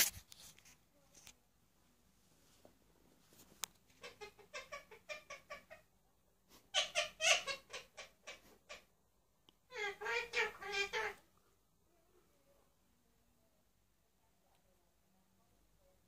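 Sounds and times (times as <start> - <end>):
parakeet chattering: 4.0 - 5.9, 6.7 - 8.9, 9.7 - 11.2.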